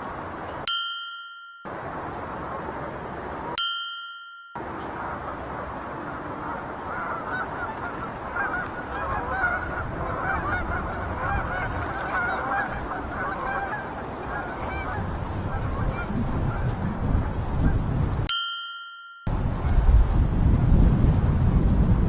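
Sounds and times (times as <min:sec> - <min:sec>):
geese honking: 0:04.8 - 0:16.8.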